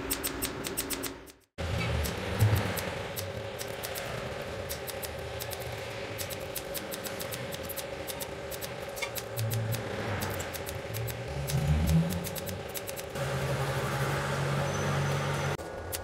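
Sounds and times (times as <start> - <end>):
welder arc pulse clicks: 4.7 - 13.2.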